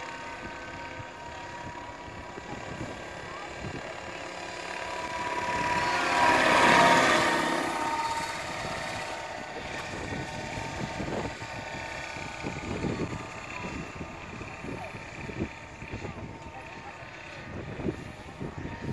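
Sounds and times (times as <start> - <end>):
model helicopter rotor and motor whine: 0.0 - 18.9.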